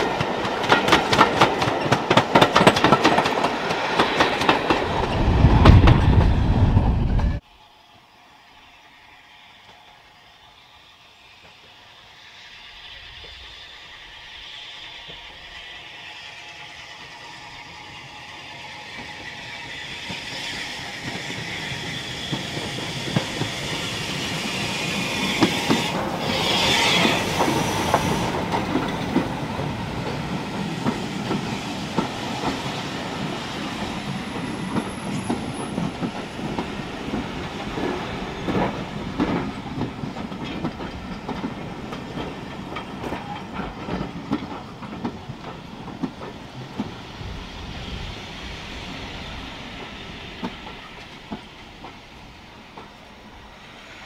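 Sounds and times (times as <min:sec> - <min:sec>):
wheels clicking over rail joints: 0:00.0 - 0:06.3, 0:34.1 - 0:47.0
steam locomotive passing: 0:00.0 - 0:54.0
loud steam hiss: 0:07.3 - 0:54.0.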